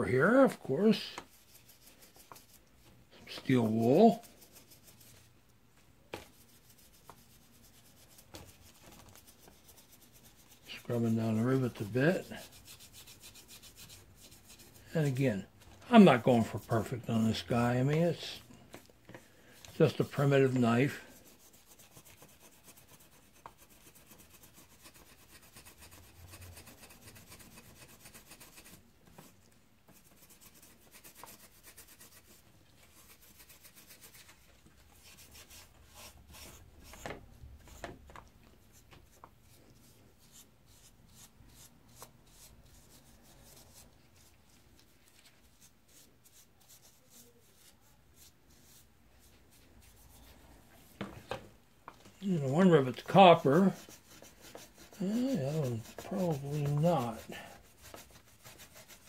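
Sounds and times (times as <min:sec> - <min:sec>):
steel wool scrubbing wood: 0:06.3 - 0:18.4, 0:52.2 - 0:59.0.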